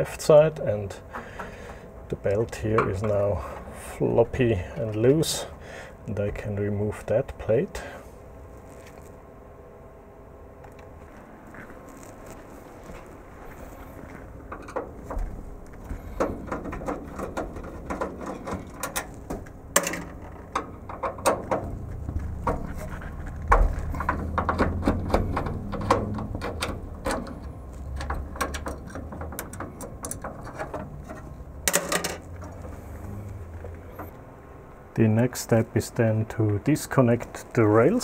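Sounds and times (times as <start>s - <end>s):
metal parts clattering: 28.0s - 32.3s.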